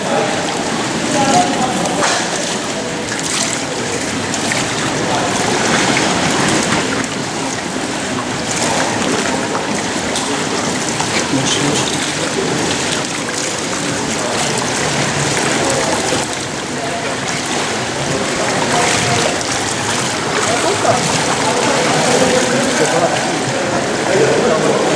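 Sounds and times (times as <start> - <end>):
indistinct voices: 0.0 - 24.9
pool water rushing and splashing: 0.0 - 24.9.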